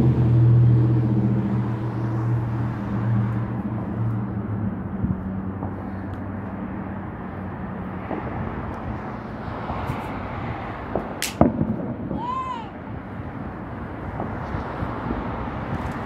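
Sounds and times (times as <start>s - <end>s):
traffic hum: 0.0s - 16.0s
distant fireworks pops: 5.5s - 6.6s, 8.0s - 10.1s, 10.8s - 12.3s, 14.0s - 16.0s
firework loud bang: 10.9s - 12.5s.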